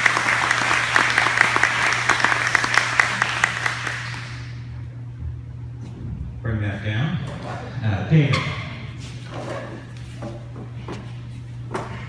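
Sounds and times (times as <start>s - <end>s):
audience applauding: 0.0s - 4.6s
steady low hum: 0.0s - 12.0s.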